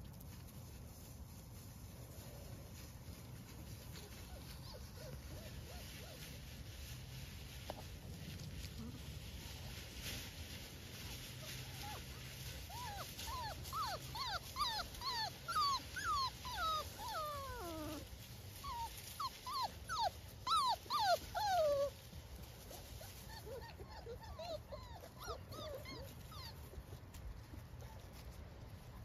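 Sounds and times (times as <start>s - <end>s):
puppies whining and whimpering: 4.0s - 6.3s, 11.2s - 22.1s, 22.7s - 27.0s.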